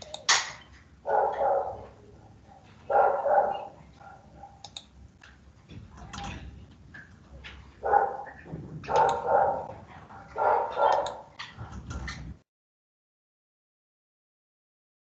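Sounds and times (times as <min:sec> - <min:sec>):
dog barking: 0:01.0 - 0:04.7, 0:07.8 - 0:11.4.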